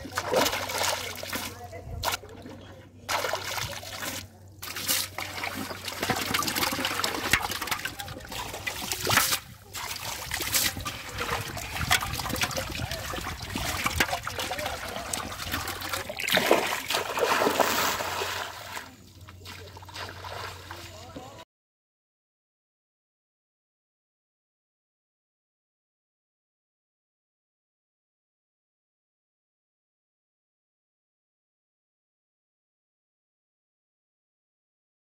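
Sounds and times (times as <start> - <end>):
fish thrashing in metal pot: 0.0 - 2.2, 3.1 - 18.8
feet wading through water: 0.0 - 21.4.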